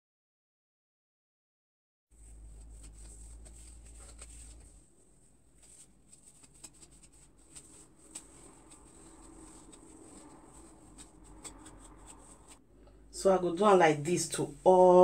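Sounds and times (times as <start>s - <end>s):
comb working through hair: 2.2s - 12.6s.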